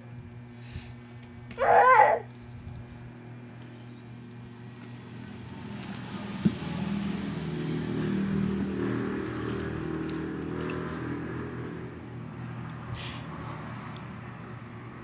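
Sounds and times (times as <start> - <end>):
vehicle engine hum: 3.5 - 15.0.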